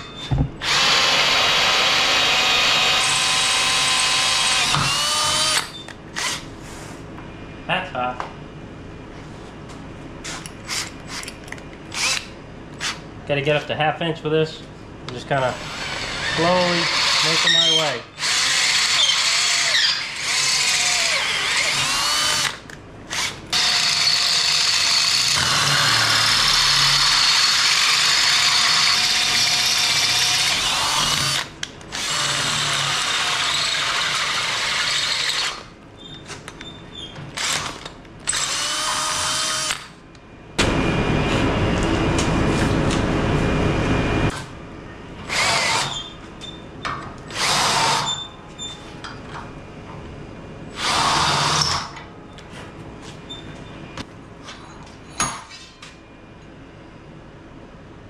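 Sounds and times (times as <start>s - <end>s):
cordless drill boring through steel: 0.6s - 6.4s, 15.6s - 35.6s, 38.3s - 39.9s, 45.3s - 46.1s, 47.3s - 48.2s.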